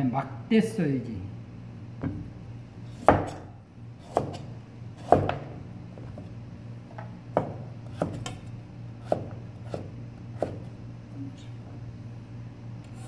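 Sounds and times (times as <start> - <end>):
knife chopping carrot on board: 2.9 - 5.5, 6.9 - 10.7.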